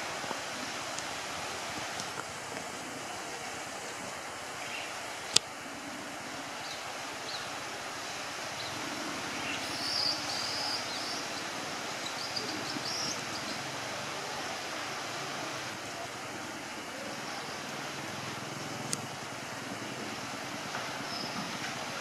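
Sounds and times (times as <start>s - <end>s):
river rushing: 0.0s - 22.0s
faint high chirping calls: 8.6s - 13.7s, 21.0s - 21.6s.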